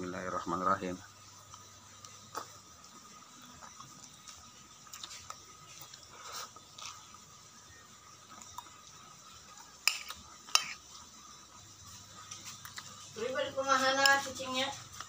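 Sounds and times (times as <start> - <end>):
chewing and slurping: 1.4 - 13.2.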